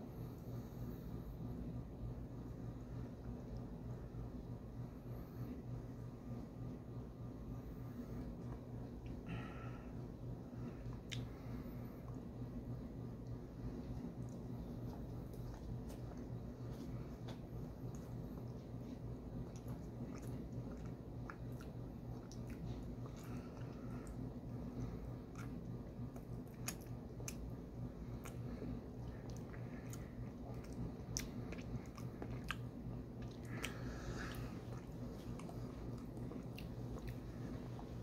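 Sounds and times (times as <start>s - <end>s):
low hum: 0.0s - 38.0s
person chewing: 10.8s - 12.2s, 13.3s - 38.0s
wet mouth clicks and smacks: 11.0s - 11.3s, 25.3s - 27.5s.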